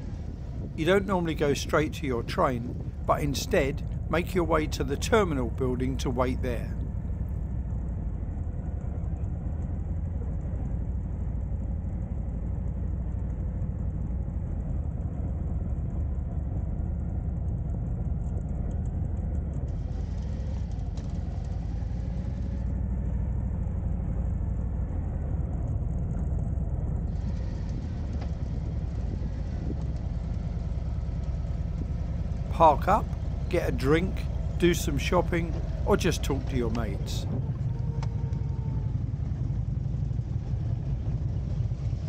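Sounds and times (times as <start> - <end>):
motorcycle engine rumbling: 26.4 - 42.0.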